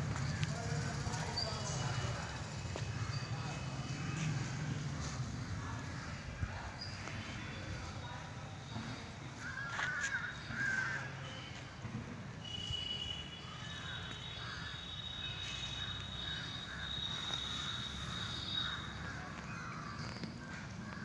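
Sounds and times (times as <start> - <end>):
crows cawing: 9.4 - 11.3, 13.4 - 15.0, 15.8 - 21.0.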